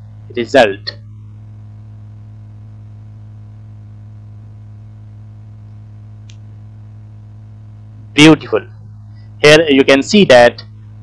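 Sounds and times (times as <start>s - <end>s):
mains hum: 0.0s - 11.0s
faint click: 6.2s - 6.5s.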